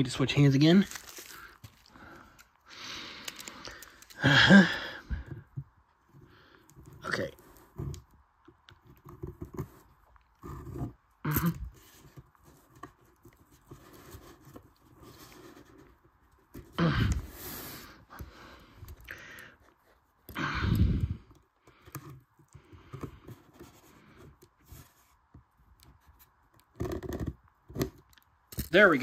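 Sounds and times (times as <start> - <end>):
rustling scrapes: 11.6 - 16.7.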